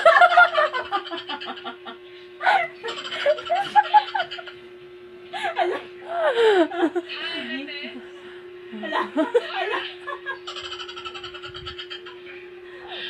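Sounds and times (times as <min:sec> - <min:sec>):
people laughing: 0:00.0 - 0:04.6, 0:05.4 - 0:07.3, 0:08.7 - 0:12.3
steady hum: 0:00.0 - 0:13.0.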